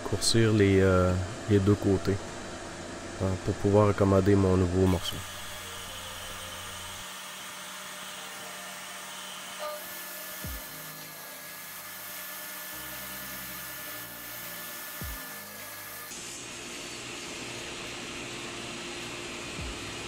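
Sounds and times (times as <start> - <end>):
machine running: 4.9 - 20.0.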